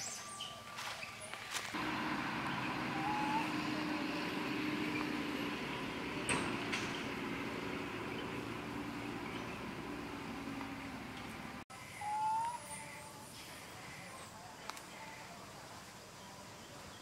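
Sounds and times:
engine humming: 0:01.7 - 0:11.6.

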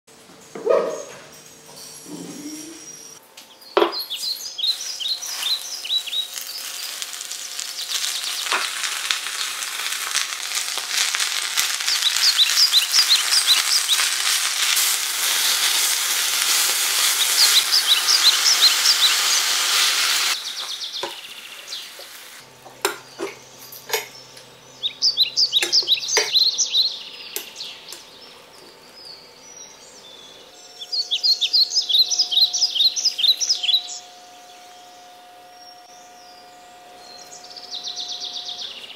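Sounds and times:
birds chirping: 0:00.3 - 0:38.9
leaves sizzling in a pan: 0:04.0 - 0:28.8, 0:30.8 - 0:34.6.

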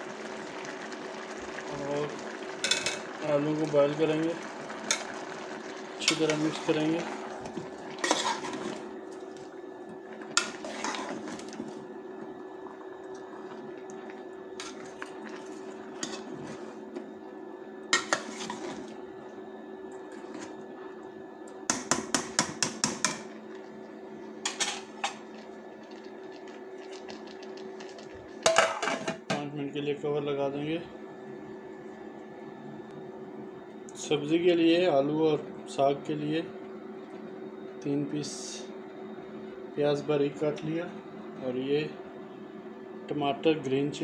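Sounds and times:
steady hum: 0:00.0 - 0:44.0
metal spoon scraping a pot: 0:08.0 - 0:08.7, 0:10.4 - 0:11.2, 0:18.0 - 0:18.9.

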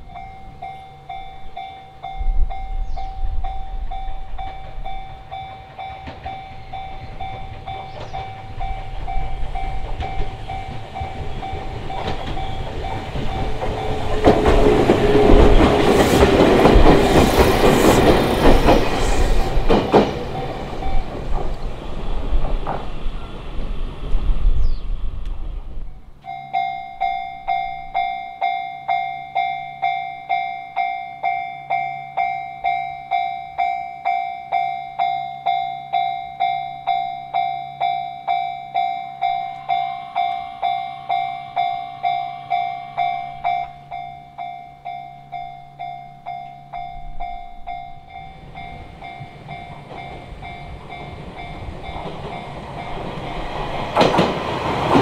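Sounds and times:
level crossing alarm bell: 0:00.0 - 0:14.2, 0:26.2 - 0:53.5
train wheels clacking on rails: 0:00.2 - 0:23.8, 0:35.0 - 0:55.0.

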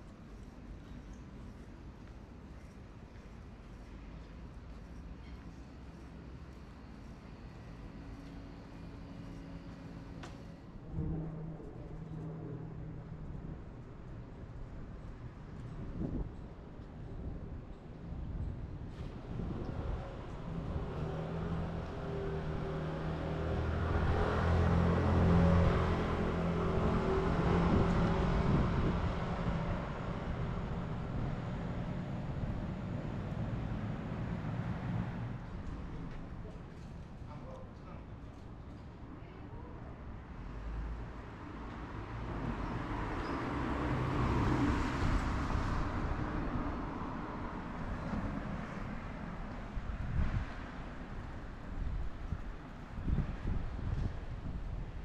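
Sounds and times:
car driving past: 0:20.4 - 0:35.5, 0:42.2 - 0:49.1.

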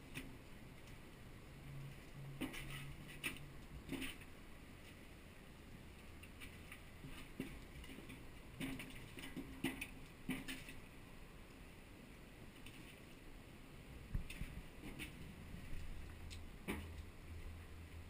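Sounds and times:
wood fire crackling: 0:14.0 - 0:18.0.

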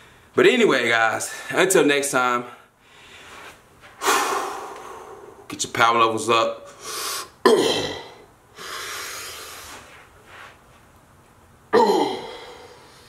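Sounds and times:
man blowing breaths: 0:02.8 - 0:05.5, 0:06.8 - 0:07.4, 0:08.5 - 0:10.1
man grunting: 0:07.5 - 0:08.2, 0:11.7 - 0:12.7.

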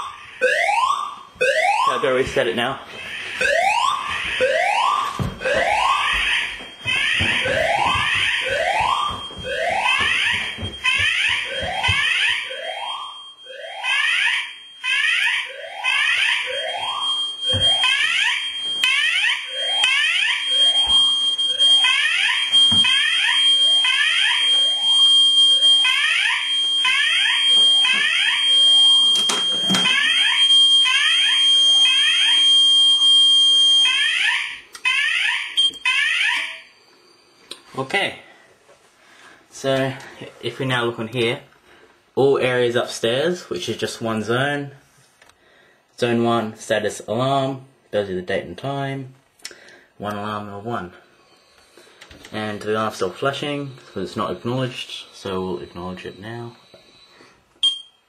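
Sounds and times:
fire alarm whooping tone: 0:00.0 - 0:38.4, 0:53.0 - 0:58.0
steady high beep: 0:57.6 - 0:58.0.

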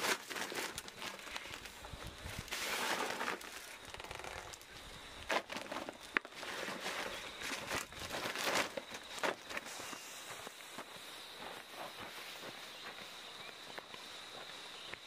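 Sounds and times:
plastic sack rustling and crinkling: 0:00.0 - 0:10.1.

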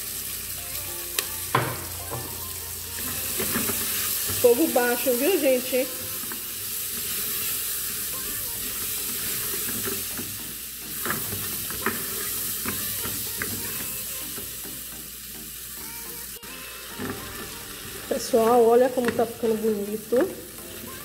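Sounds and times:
vegetables sizzling in oil: 0:00.0 - 0:21.0
spatula scraping and tapping pot: 0:03.0 - 0:05.1, 0:09.0 - 0:14.8, 0:16.9 - 0:19.4.

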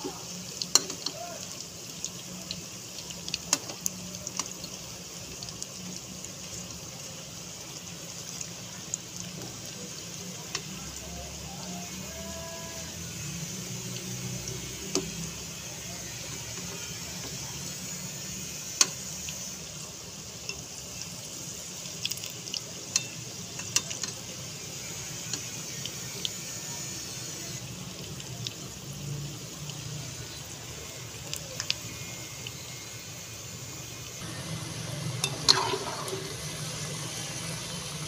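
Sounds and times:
food deep-frying in oil: 0:00.0 - 0:38.0.

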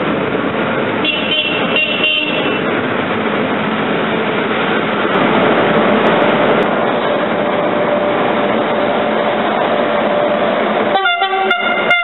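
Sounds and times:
passing train noise: 0:00.0 - 0:12.0
high-pitched train horn: 0:10.9 - 0:12.0.

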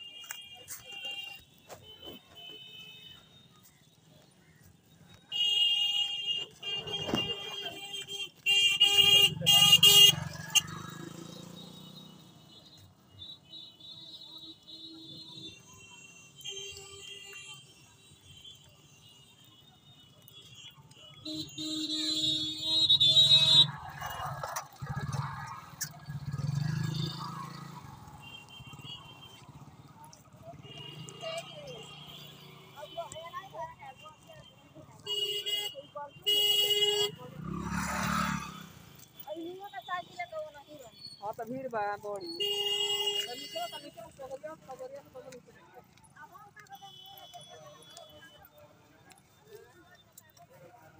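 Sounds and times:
faint street noise: 0:00.0 - 0:50.9
vehicle horn blasts: 0:05.3 - 0:10.4, 0:11.6 - 0:23.8, 0:34.2 - 0:37.6, 0:42.4 - 0:44.1, 0:46.7 - 0:48.4
motorcycle engine revving: 0:09.0 - 0:12.6, 0:22.8 - 0:32.7, 0:37.1 - 0:39.1.

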